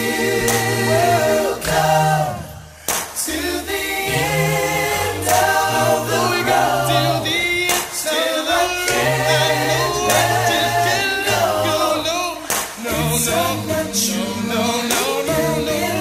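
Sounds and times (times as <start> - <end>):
a cappella singing: 0.0 - 16.0
low sustained bass notes: 12.9 - 16.0.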